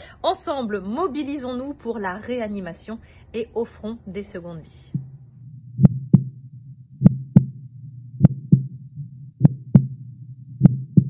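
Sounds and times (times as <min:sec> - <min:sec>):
low steady hum: 0:00.0 - 0:11.0
heartbeat thumps: 0:04.9 - 0:11.0.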